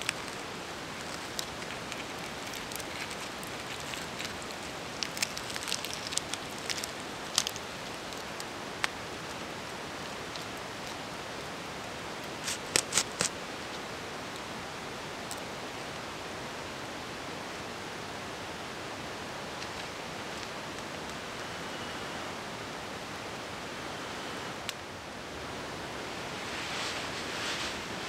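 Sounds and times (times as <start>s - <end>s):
campfire crackling: 0.0s - 14.5s.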